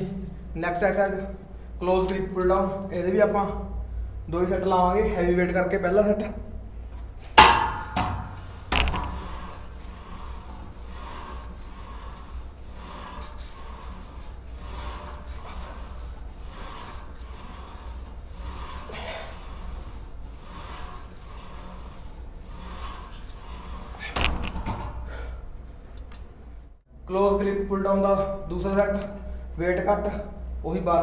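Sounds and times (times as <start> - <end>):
weight stack sliding: 6.7 - 26.8
cable rasping over pulleys: 7.3 - 25.2.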